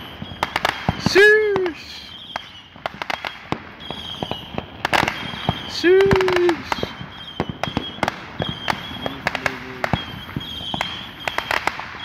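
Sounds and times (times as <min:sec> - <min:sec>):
fireworks popping and banging: 0:00.0 - 0:12.0.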